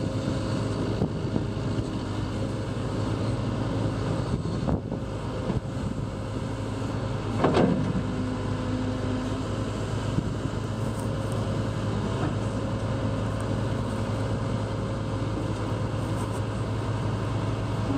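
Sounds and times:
excavator running: 0:00.0 - 0:17.9.

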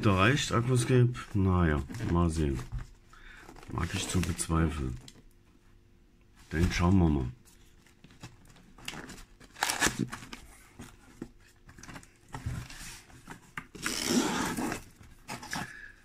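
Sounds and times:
cardboard scraping rustle: 0:08.1 - 0:15.8.

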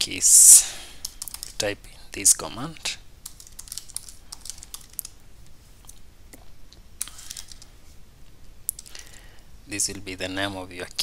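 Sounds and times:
computer keyboard typing: 0:01.0 - 0:01.6, 0:03.2 - 0:05.2.

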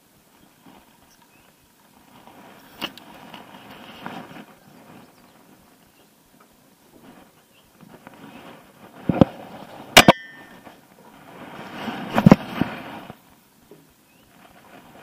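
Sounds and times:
rustling handling noise: 0:00.1 - 0:15.0
metallic clank ringing: 0:10.0 - 0:10.6.

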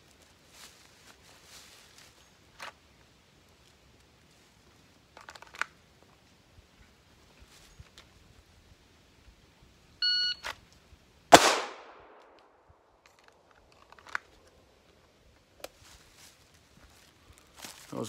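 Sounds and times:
shot timer beep: 0:10.0 - 0:10.4
pistol shot with echo: 0:11.3 - 0:12.2.

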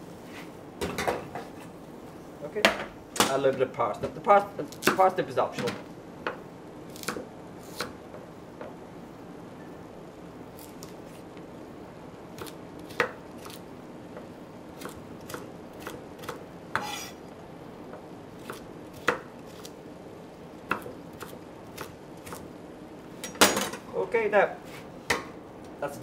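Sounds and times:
steady low hum: 0:00.0 - 0:26.0
knife chopping on plastic board: 0:20.7 - 0:22.4.

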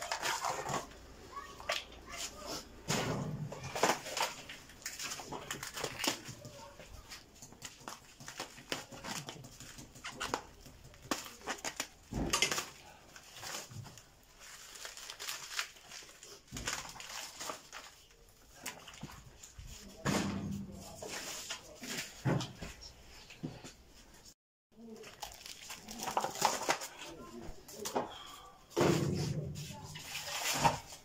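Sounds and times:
plastic tray crinkling: 0:24.9 - 0:27.0.

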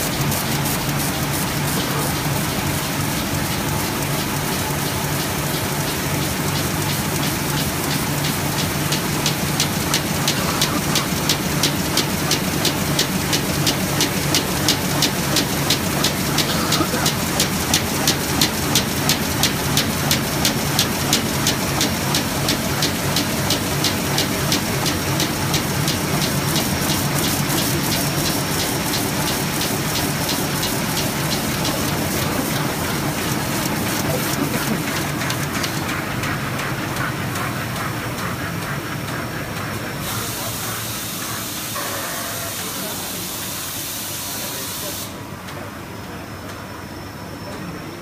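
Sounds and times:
rapid regular clicking: 0:00.0 - 0:40.0
printing press mechanical rush: 0:00.0 - 0:48.0.

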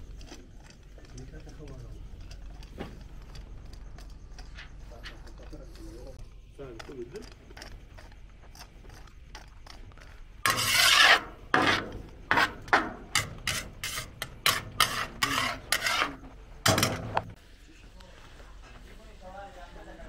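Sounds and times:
rasping scraping strokes: 0:10.4 - 0:16.4.

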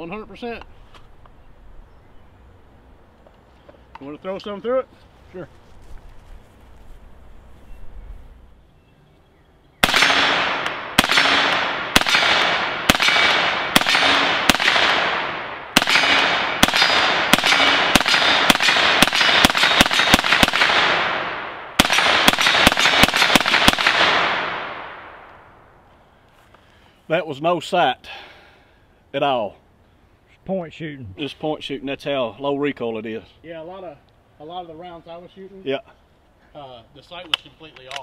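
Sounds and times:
rapid gunshots with echo: 0:09.8 - 0:25.2.

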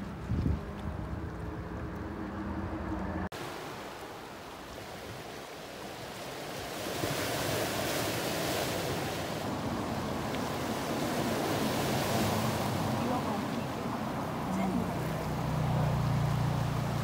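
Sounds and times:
wind on microphone: 0:00.0 - 0:03.2
waves breaking against rocks: 0:03.4 - 0:17.0.

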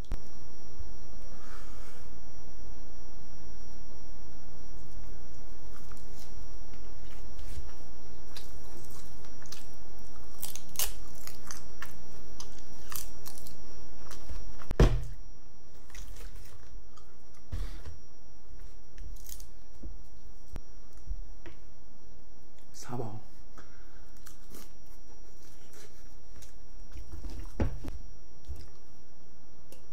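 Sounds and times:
chewing and crunching sushi: 0:07.0 - 0:14.4
thump: 0:14.7 - 0:15.2.

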